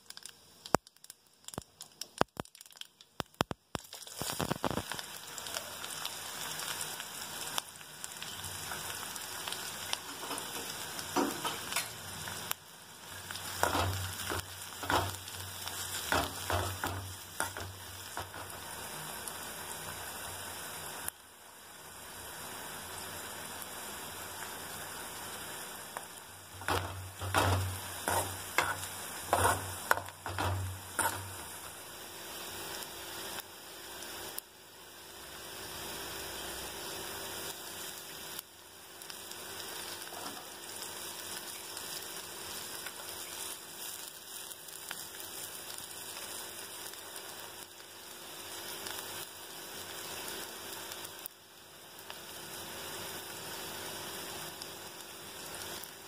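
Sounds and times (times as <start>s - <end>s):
onions sizzling in hot oil: 0.0s - 56.0s
spoon scraping and stirring pan: 13.3s - 18.7s, 26.5s - 31.8s.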